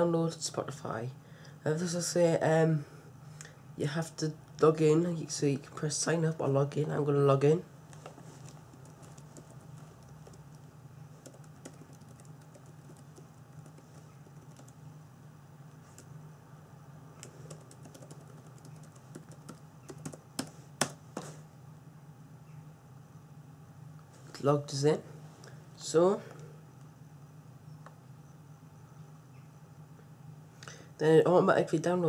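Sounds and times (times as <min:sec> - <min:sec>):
computer keyboard typing: 0:08.5 - 0:14.8, 0:17.2 - 0:21.0.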